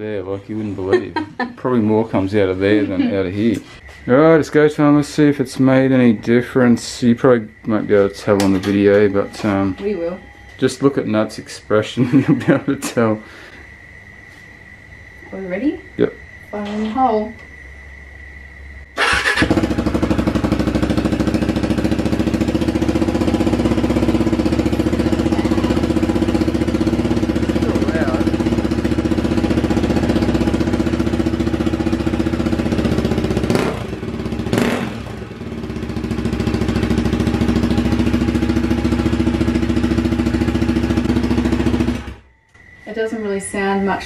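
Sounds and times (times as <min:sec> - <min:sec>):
electric starter: 0:19.0 - 0:25.3
motorcycle engine idling: 0:19.0 - 0:42.3.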